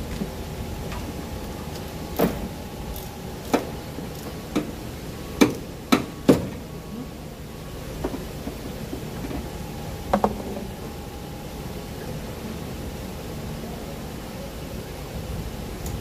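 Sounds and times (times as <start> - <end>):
steady shop hum: 0.0 - 16.0
hand tools striking engine parts: 5.4 - 6.5.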